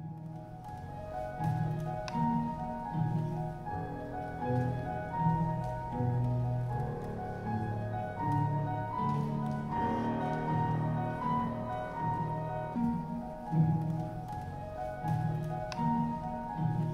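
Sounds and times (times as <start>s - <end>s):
piano-like keyboard: 0.0s - 16.9s
slow instrumental music: 0.0s - 16.9s.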